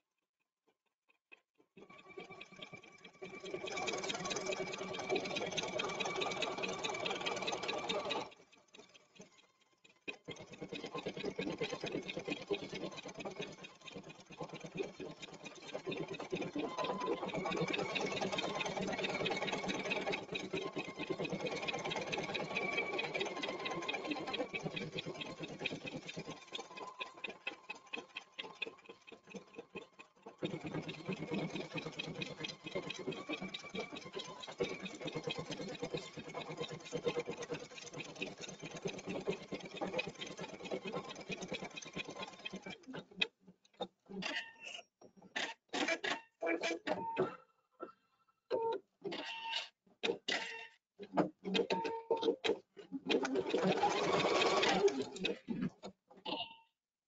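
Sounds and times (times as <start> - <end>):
embroidery machine stitching: 3.2 - 8.4, 10.4 - 29.7, 30.4 - 43.2, 53.1 - 55.4.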